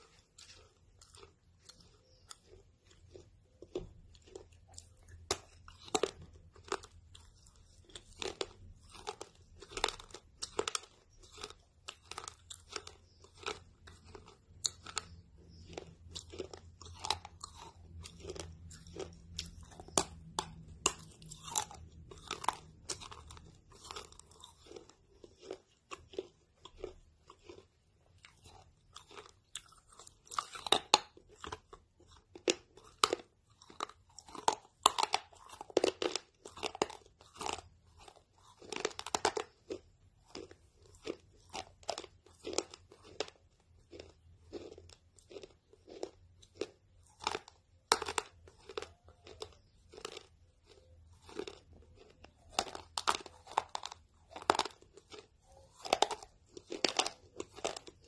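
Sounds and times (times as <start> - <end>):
crunching and chewing chip: 0.0 - 58.0.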